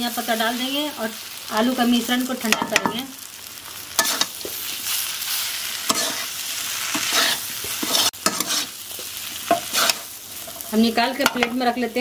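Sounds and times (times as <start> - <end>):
faint sizzle: 0.0 - 12.0
metal spatula scraping pan: 4.0 - 4.7, 5.7 - 8.8, 9.4 - 11.5.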